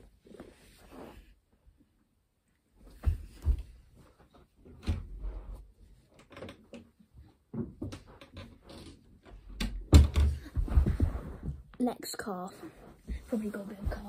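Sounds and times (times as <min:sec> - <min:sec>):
soft scuffing and rustling: 0:10.5 - 0:11.7, 0:12.5 - 0:14.0
footsteps on carpet: 0:12.6 - 0:14.0.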